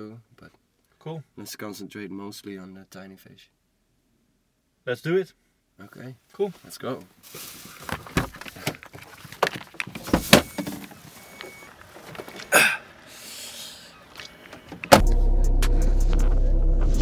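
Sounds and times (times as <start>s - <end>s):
background music: 15.0s - 17.0s.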